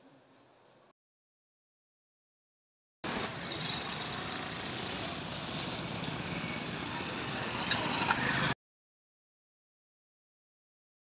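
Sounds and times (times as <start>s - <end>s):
road traffic: 3.0s - 8.6s.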